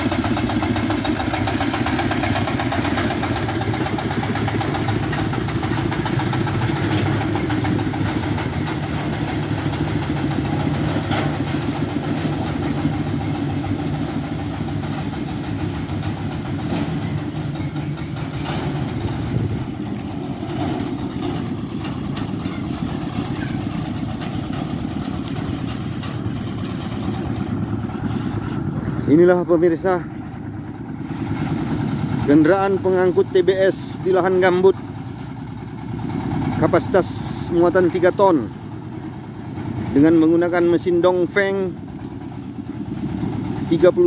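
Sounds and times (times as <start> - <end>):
diesel engine running: 0.0 - 44.0
metal clanks: 2.8 - 13.7, 14.7 - 27.3.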